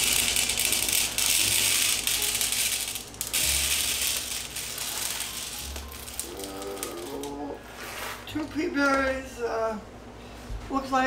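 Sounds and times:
coffee beans pouring into tray: 0:00.0 - 0:08.2.

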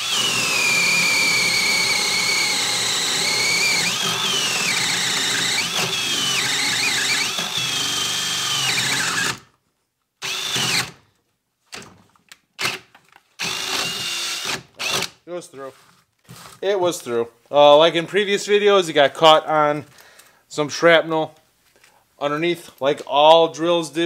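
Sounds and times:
short drill bursts: 0:00.0 - 0:09.4, 0:10.2 - 0:11.0, 0:13.4 - 0:15.2
drill boring through wood: 0:00.0 - 0:09.5, 0:10.2 - 0:11.0, 0:13.4 - 0:15.2.

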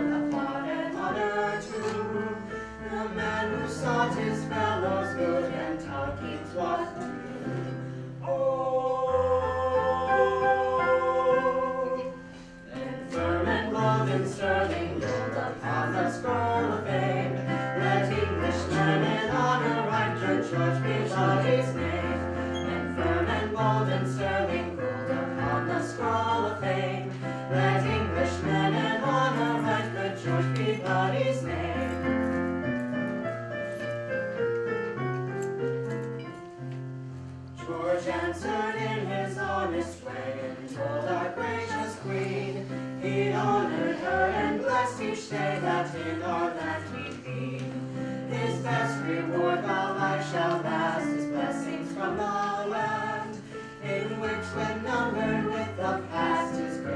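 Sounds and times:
keyboard music: 0:08.7 - 0:14.1.

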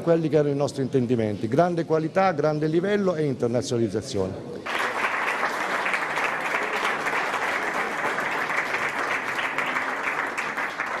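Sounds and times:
people clapping: 0:04.6 - 0:11.0.

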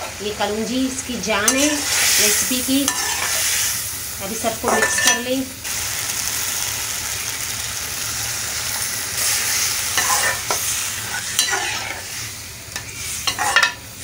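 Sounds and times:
liquid sizzling in a pan: 0:00.0 - 0:14.0
spoon scraping metal pan: 0:01.4 - 0:03.5, 0:04.6 - 0:05.3, 0:09.9 - 0:12.1, 0:12.8 - 0:13.8.

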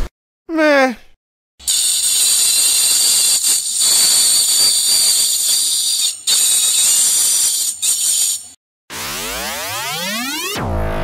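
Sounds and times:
metal scraping screech: 0:01.7 - 0:08.4.

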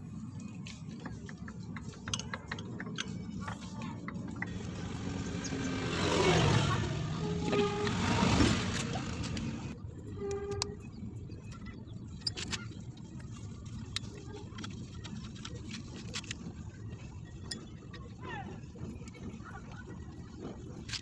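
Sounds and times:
motor vehicle passing: 0:03.0 - 0:09.8.

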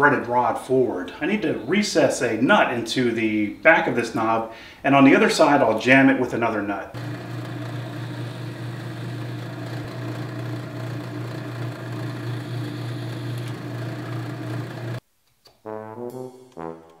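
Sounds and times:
drill press boring into wood: 0:07.0 - 0:15.0.

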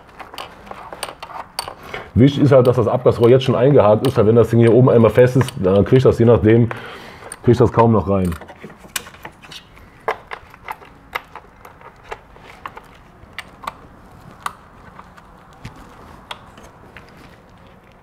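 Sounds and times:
hand ratchet clicking: 0:00.0 - 0:06.1, 0:06.8 - 0:07.5.

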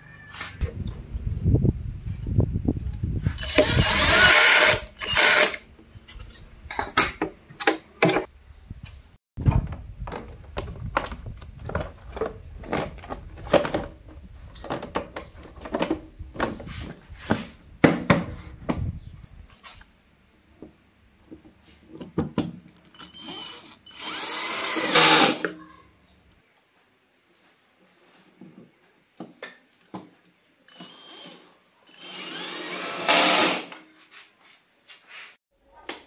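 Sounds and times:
faint high whine: 0:08.1 - 0:34.7.

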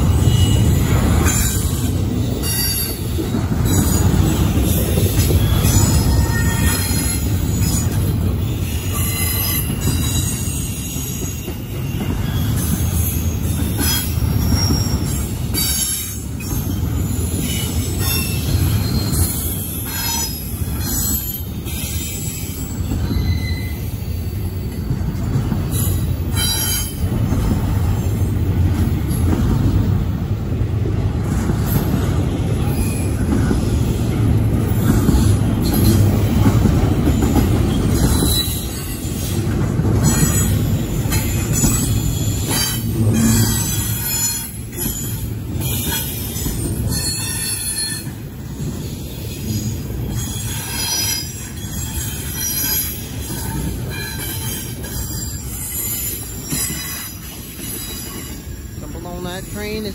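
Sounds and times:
freight train rumble: 0:00.0 - 0:59.9
train clanks: 0:00.0 - 0:59.9
high wheel squeals: 0:05.4 - 0:25.0, 0:48.8 - 0:58.9.

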